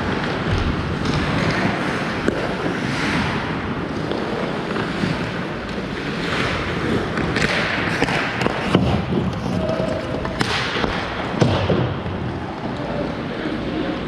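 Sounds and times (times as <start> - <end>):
skate blades scraping ice: 0.0 - 11.1
sticks and puck clacking: 0.0 - 14.0.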